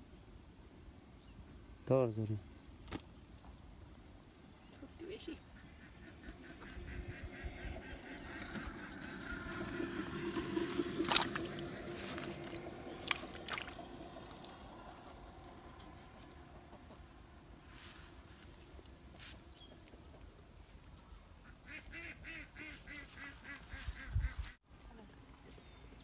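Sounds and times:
motor hum: 5.7 - 18.9.

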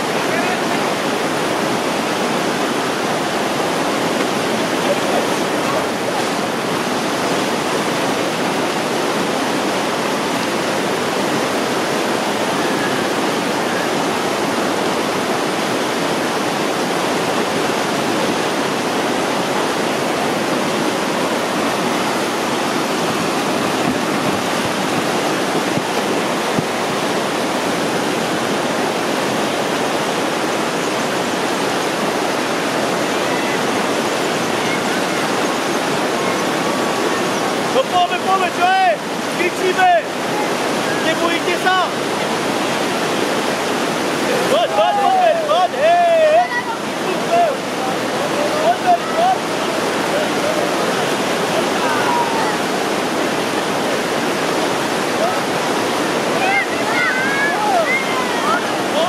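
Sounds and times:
whitewater rapids rushing: 0.0 - 59.0.

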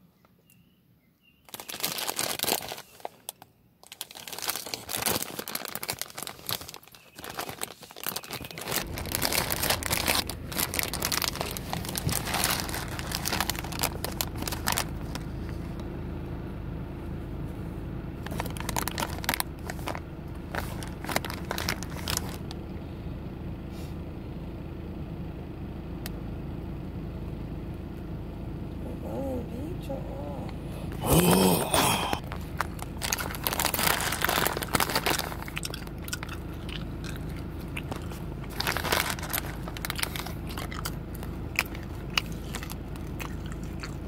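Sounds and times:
fingers rustling in candies: 1.4 - 15.8, 18.2 - 22.6, 30.9 - 44.0
plastic candy bag crinkling: 1.4 - 15.8, 18.2 - 22.6, 30.9 - 44.0
steady low hum: 3.2 - 44.0.

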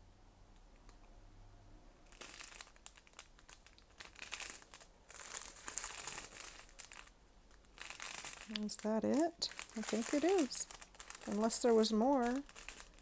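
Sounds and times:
plastic bags crinkling: 2.0 - 13.0.

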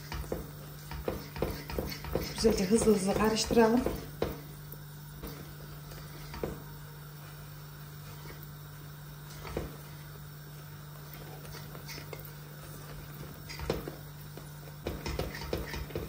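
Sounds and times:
metal spoon stirring thick mixture: 0.0 - 4.4.

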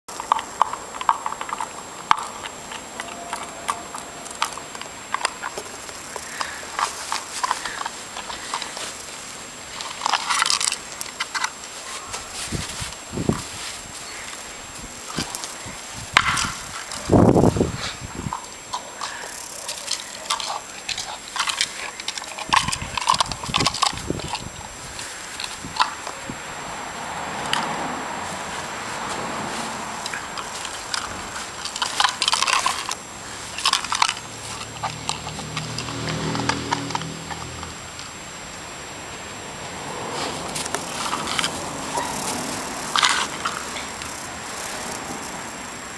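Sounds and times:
dog teeth crunching on bone: 0.1 - 12.1, 18.3 - 26.2, 30.0 - 37.8, 40.5 - 45.5
puppy sniffing and snuffling: 1.6 - 14.5, 28.2 - 37.7, 40.0 - 45.4.

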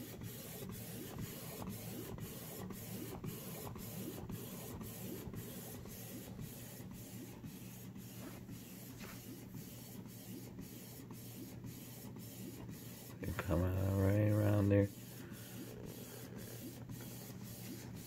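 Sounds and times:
printer mechanism whirring: 0.0 - 18.0.

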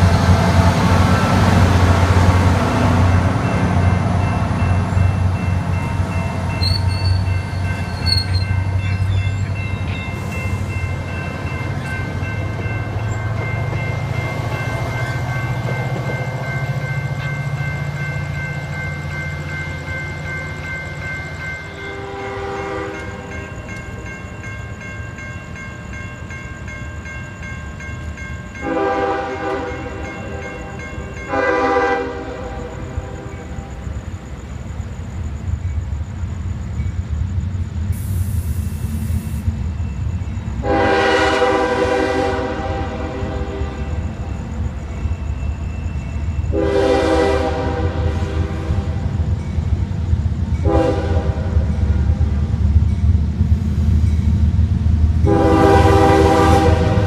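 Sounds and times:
train rumble: 0.0 - 57.0
train air horn blasts: 21.7 - 23.2, 28.6 - 30.4, 31.3 - 33.4, 40.6 - 44.0, 46.5 - 49.0, 50.6 - 51.7, 55.2 - 57.0.

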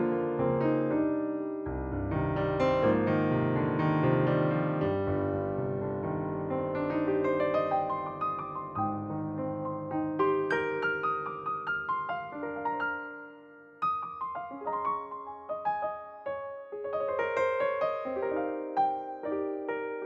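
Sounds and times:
calm piano instrumental music: 0.0 - 20.0.

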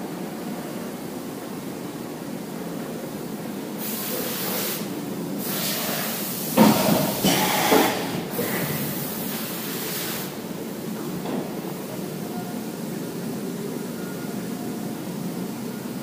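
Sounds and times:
compressed air hissing: 3.8 - 10.4.

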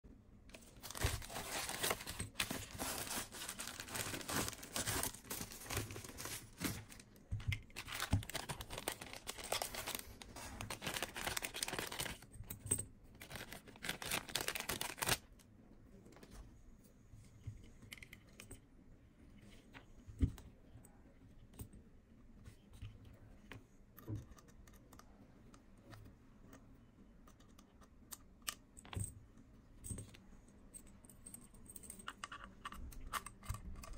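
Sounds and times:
plastic packaging crinkling and tearing: 0.5 - 7.0, 7.8 - 12.2, 13.2 - 15.3
small parts clicking and tapping: 23.9 - 33.9.

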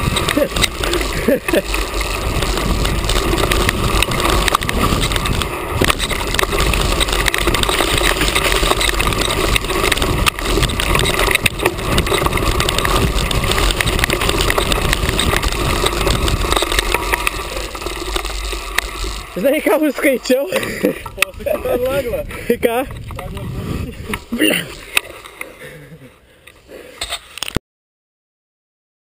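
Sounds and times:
rushing wind noise: 0.0 - 25.0
camera rattling on bike: 0.0 - 27.6.

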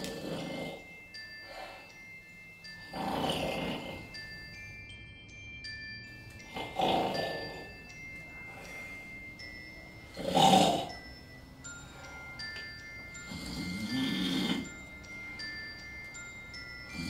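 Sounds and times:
man snoring loudly: 0.0 - 1.8, 2.8 - 4.3, 6.4 - 7.8, 10.0 - 12.3, 13.1 - 15.2
tinkling glockenspiel music: 0.0 - 17.0.

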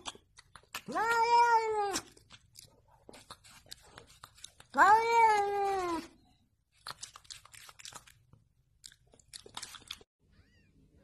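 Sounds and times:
cat meowing: 0.8 - 2.2, 4.7 - 6.2.

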